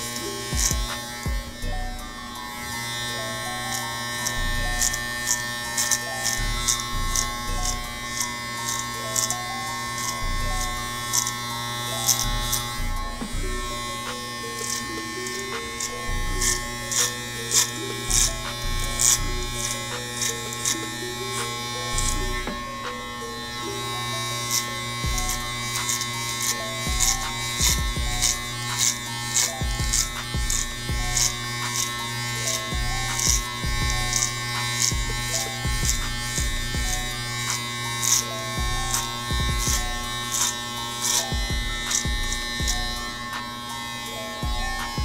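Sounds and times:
background music with beat: 0.0 - 45.0
electric hair clippers buzzing: 0.0 - 45.0.

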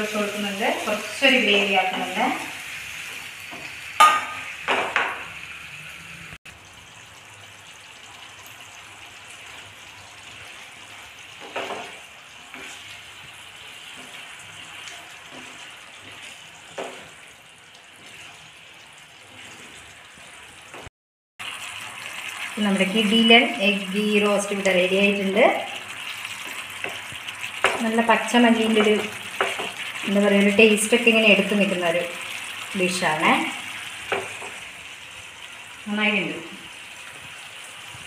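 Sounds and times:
gravy simmering and sizzling: 0.0 - 38.0
water splashing into hot pan: 0.4 - 5.5, 6.5 - 35.9
spatula scraping pan: 11.4 - 20.9.

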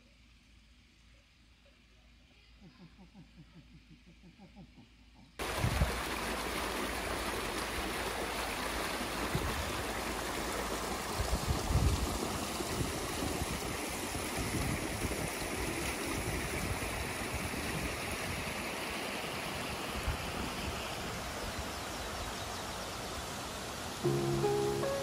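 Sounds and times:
stream rushing over rocks: 5.4 - 25.0.

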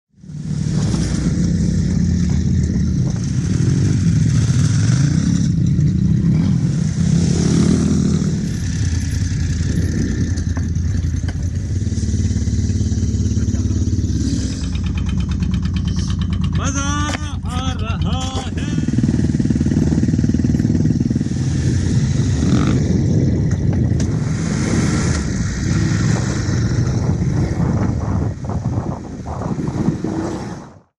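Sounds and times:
motorcycle engine running: 0.2 - 30.3
wind rush: 18.5 - 30.9.

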